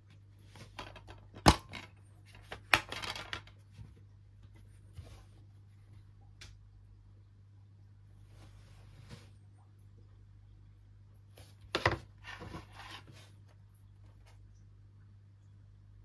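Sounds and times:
plastic crackling: 0.6 - 3.6.

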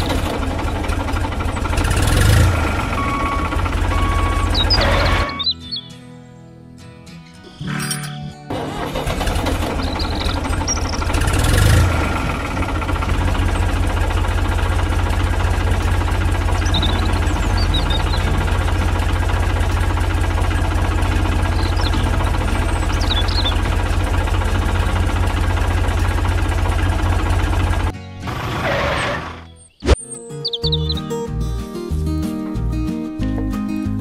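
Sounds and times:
tractor engine chugging: 0.0 - 5.9, 8.5 - 29.4
faint bird chirps: 4.2 - 6.5, 16.5 - 18.3, 21.5 - 23.7, 29.4 - 31.2.

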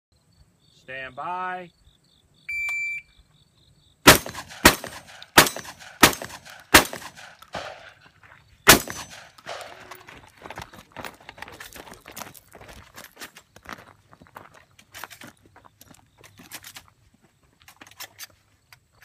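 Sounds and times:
shot timer beep: 2.5 - 3.1
pistol shots: 4.0 - 8.0, 8.7 - 9.9.

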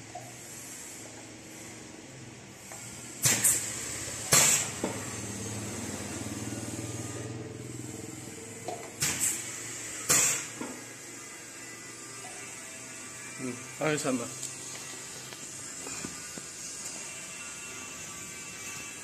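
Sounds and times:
compressed air bursts: 2.6 - 5.3, 9.0 - 10.6.

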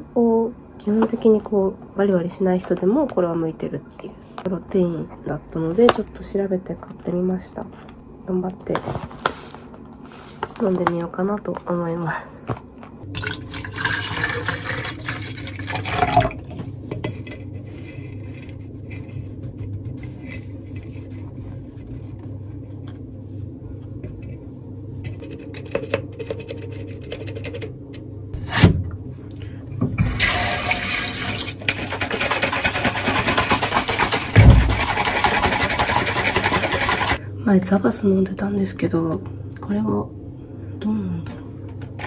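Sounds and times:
low steady hum: 0.0 - 42.0
water poured into plastic bottle: 13.1 - 16.4
shaker bottle sloshing rattle: 30.3 - 37.2.

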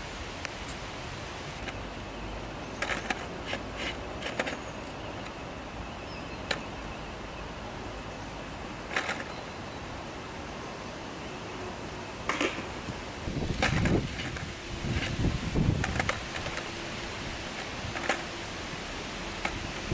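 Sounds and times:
steady outdoor hiss: 0.0 - 19.9
skateboard clicks and knocks: 2.8 - 5.4, 8.9 - 9.4, 12.2 - 12.8, 13.5 - 16.7, 17.5 - 18.4, 19.4 - 19.9.

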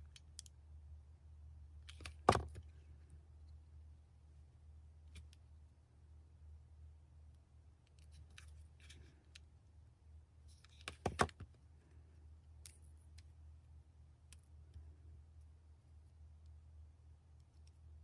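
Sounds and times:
steady low hum: 0.0 - 10.8.

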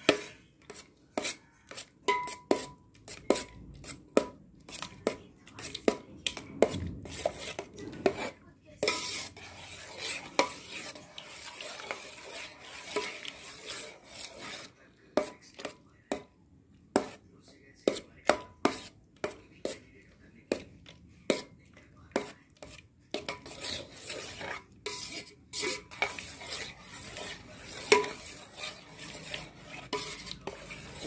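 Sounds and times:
spoon scraping through butter: 0.0 - 16.3, 16.9 - 31.0
spoon clinking against steel bowl: 2.0 - 2.8.

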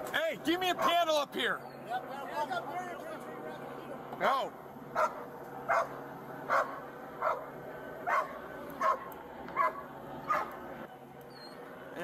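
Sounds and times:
dog barking: 5.0 - 10.6.

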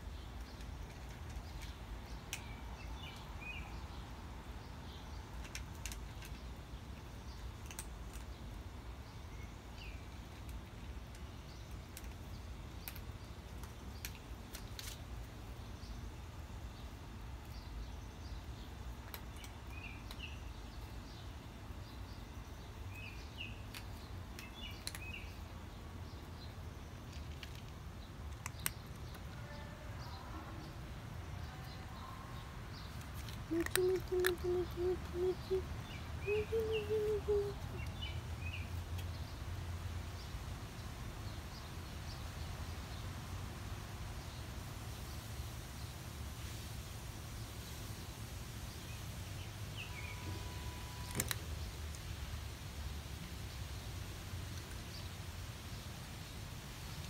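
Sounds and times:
faint bird chirps: 33.5 - 37.9.

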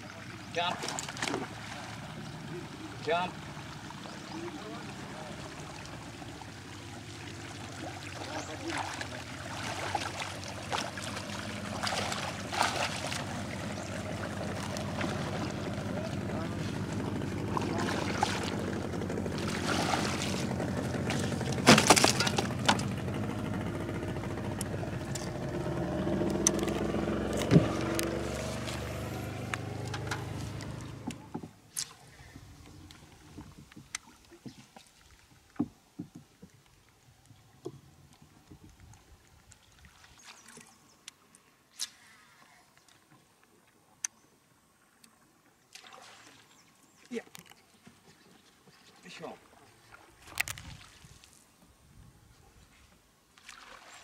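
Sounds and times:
outboard motor running: 0.0 - 34.6.

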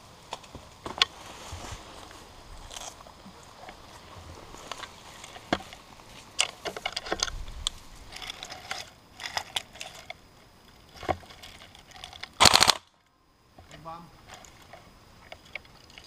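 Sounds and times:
twigs crackling and snapping: 2.0 - 10.2.

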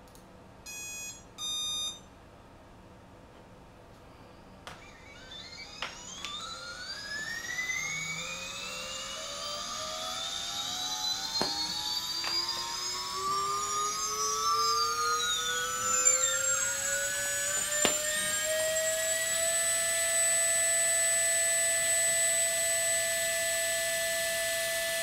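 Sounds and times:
drone motor whine: 4.7 - 25.0.

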